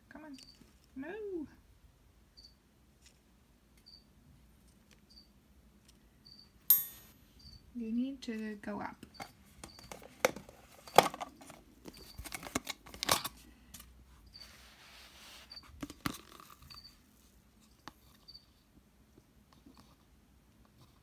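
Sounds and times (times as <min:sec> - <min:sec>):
soft rustle: 0:13.3 - 0:18.7.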